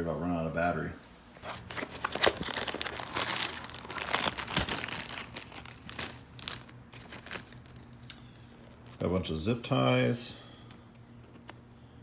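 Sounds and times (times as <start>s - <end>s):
plastic bag crinkling: 1.4s - 9.0s.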